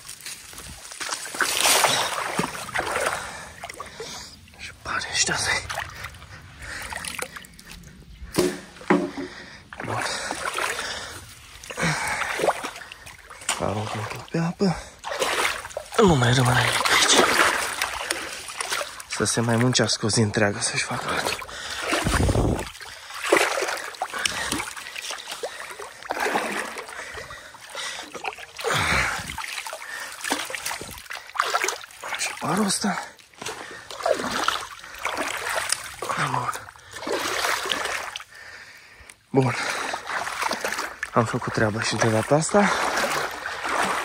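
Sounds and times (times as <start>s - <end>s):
water splashing and sloshing: 0.0s - 44.0s
short sharp knocks: 8.3s - 9.3s.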